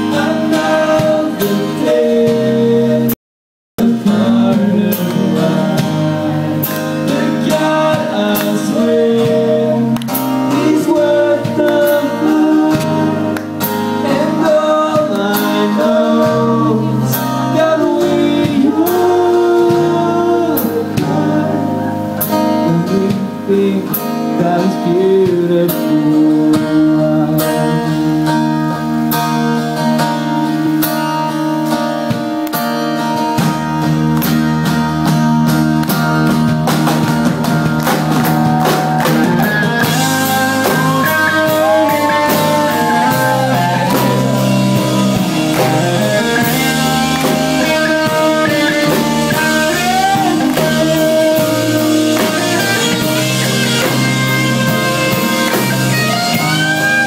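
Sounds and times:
guitar chords: 0:00.0 - 0:03.2, 0:03.8 - 0:57.0
person singing: 0:00.0 - 0:03.2, 0:03.8 - 0:28.4, 0:38.2 - 0:57.0
drums and cymbals: 0:33.2 - 0:57.0.

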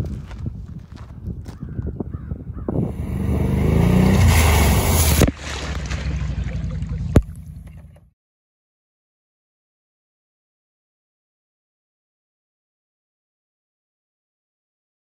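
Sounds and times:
quad bike engine revving: 0:02.7 - 0:05.3
heavy water splashing: 0:02.9 - 0:08.0.

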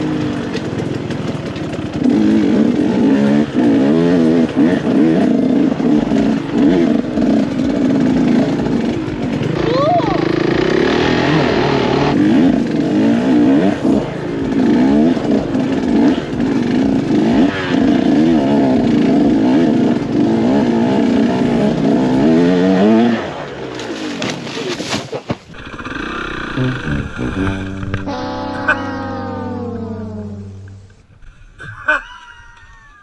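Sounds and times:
motorcycle engine revving: 0:00.0 - 0:24.6, 0:25.5 - 0:31.3.

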